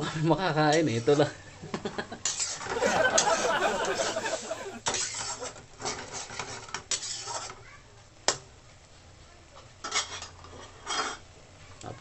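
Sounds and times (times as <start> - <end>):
metal spatula scraping wok: 6.9 - 7.5.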